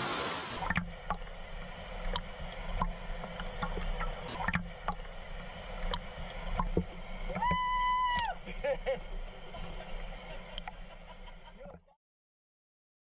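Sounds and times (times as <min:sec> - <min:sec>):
small waterfall rushing: 0:00.0 - 0:00.8
muffled water sloshing: 0:00.0 - 0:11.8.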